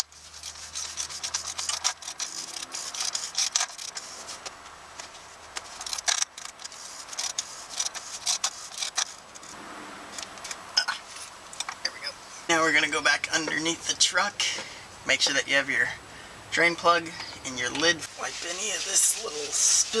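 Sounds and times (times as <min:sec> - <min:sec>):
socket ratchet clicking: 0:00.8 - 0:04.0, 0:05.8 - 0:09.1.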